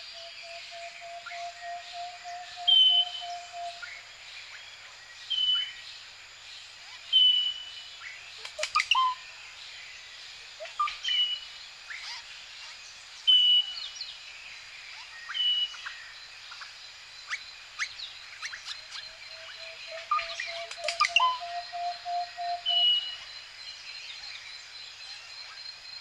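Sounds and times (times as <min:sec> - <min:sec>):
insect hiss: 0:00.0 - 0:26.0
birds chirping and calling: 0:00.1 - 0:04.0, 0:08.4 - 0:09.2, 0:11.9 - 0:13.5, 0:17.3 - 0:23.2
sharp clicking chirps: 0:08.4 - 0:09.0, 0:19.9 - 0:22.8.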